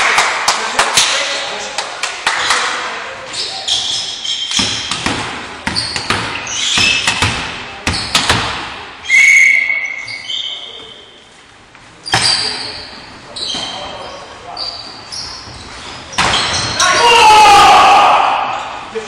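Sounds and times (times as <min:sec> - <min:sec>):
volleyball slaps and thuds: 0:04.5 - 0:08.8
players shouting: 0:16.7 - 0:18.8.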